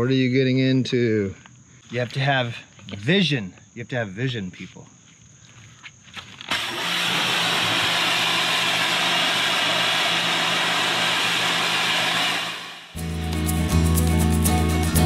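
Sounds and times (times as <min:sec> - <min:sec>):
pressure washer spraying: 0:06.5 - 0:13.0
guitar music: 0:13.0 - 0:15.0.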